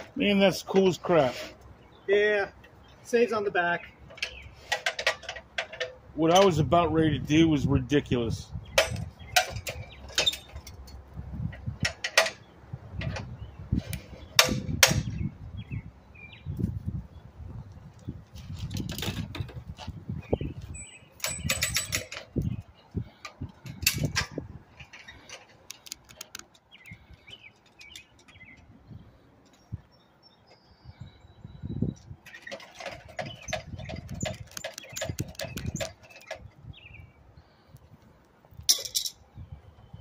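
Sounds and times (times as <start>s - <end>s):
metallic clanks and knocks: 4.1s - 6.7s, 8.7s - 12.4s, 14.2s - 15.2s, 20.8s - 22.6s, 32.2s - 36.5s, 38.7s - 39.2s.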